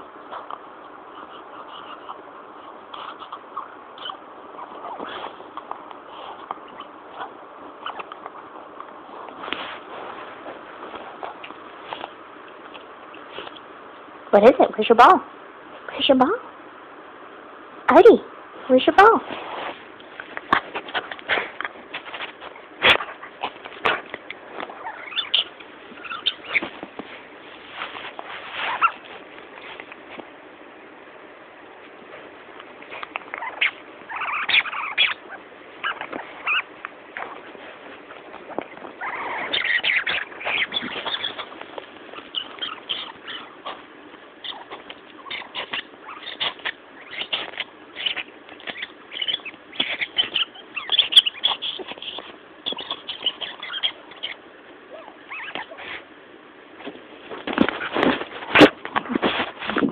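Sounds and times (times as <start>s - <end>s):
dog snuffling: 0.1s - 13.7s, 19.2s - 30.4s, 31.8s - 59.9s
dog whining: 1.1s - 8.3s, 20.9s - 26.8s, 28.5s - 29.2s, 32.9s - 56.1s
squeaky toy squeaks: 24.8s - 26.7s, 33.5s - 35.2s, 39.0s - 41.6s, 42.2s - 43.5s, 44.4s - 54.4s.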